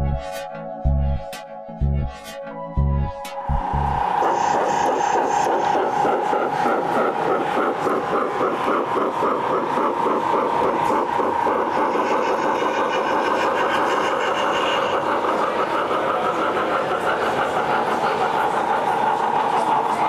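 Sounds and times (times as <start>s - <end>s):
model steam locomotive chuffing: 3.8s - 20.0s.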